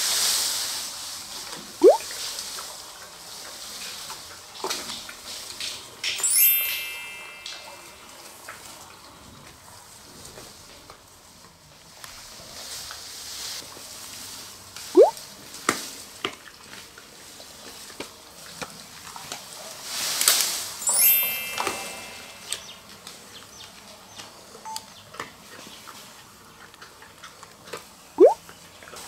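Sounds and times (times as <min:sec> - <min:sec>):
falling ringing chime: 0:06.2 - 0:08.3, 0:20.8 - 0:22.8.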